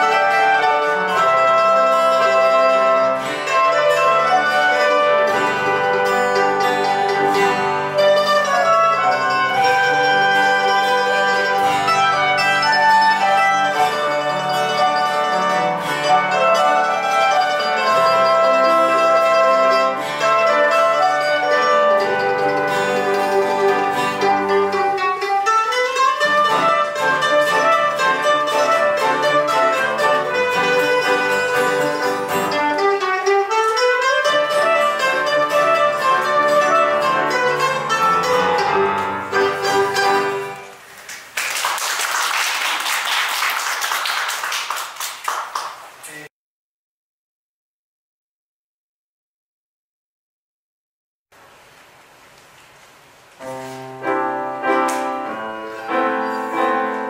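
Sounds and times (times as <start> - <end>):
clarinet: 0.0 - 40.9, 53.4 - 57.0
mandolin: 0.0 - 40.9, 53.4 - 57.0
guitar: 0.0 - 41.3, 53.4 - 57.0
piano: 0.0 - 44.4, 53.4 - 57.0
audience applause: 40.9 - 46.3.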